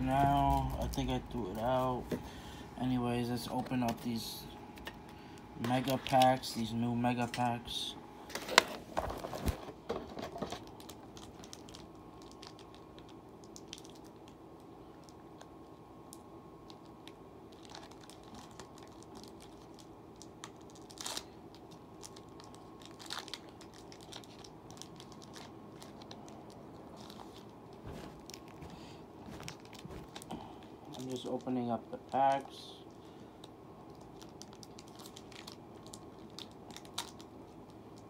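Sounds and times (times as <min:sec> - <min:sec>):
foil wrappers crinkling and tearing: 0:05.6 - 0:06.6, 0:09.0 - 0:15.6, 0:16.6 - 0:38.0.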